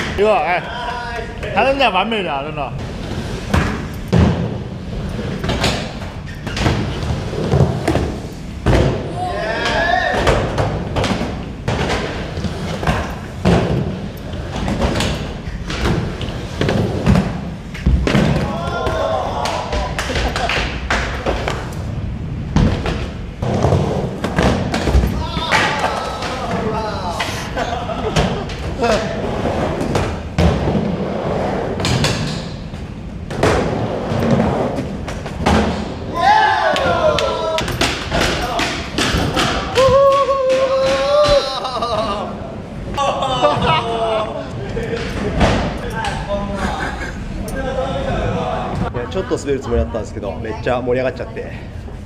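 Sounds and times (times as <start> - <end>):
skateboards thudding on ramps: 2.8 - 26.8, 27.4 - 42.5
skateboard wheels rolling on wood: 2.8 - 43.0
skateboard clacks and thumps: 36.7 - 41.6.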